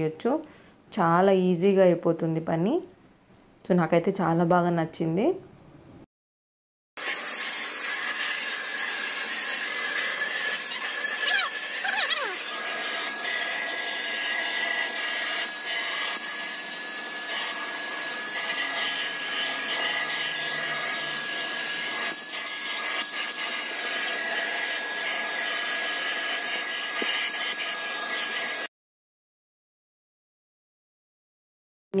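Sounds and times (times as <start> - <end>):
vacuum cleaner whining: 7.0 - 28.7.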